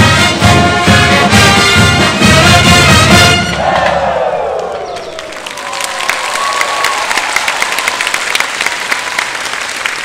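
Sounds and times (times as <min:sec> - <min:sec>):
large crowd applauding: 0:04.4 - 0:10.0.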